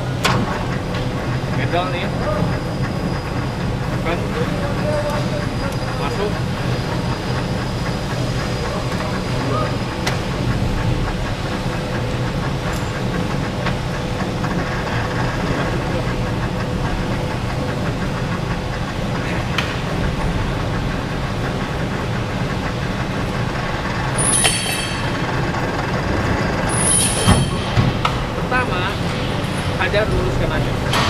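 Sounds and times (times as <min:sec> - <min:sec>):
metal lathe running: 0:00.0 - 0:31.0
high-pitched metallic ring: 0:24.2 - 0:25.3, 0:26.7 - 0:27.7.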